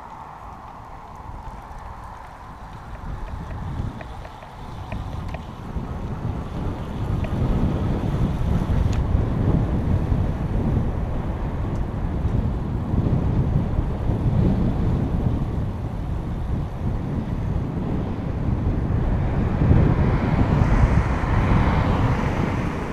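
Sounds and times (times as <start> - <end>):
wind buffeting microphone: 0.0 - 22.9
broad rushing noise: 17.4 - 22.9.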